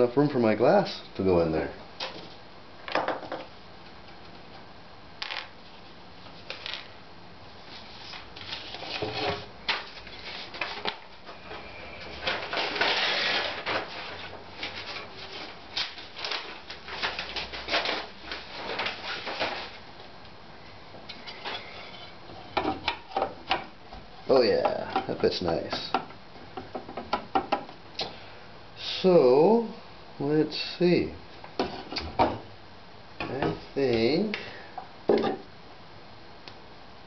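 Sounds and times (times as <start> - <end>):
rustling: 7.6 - 19.9.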